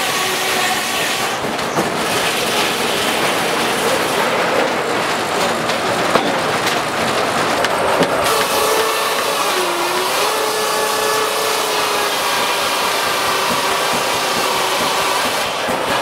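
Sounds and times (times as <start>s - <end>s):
saw whining: 0.0s - 4.3s, 8.2s - 16.0s
machinery noise: 0.0s - 16.0s.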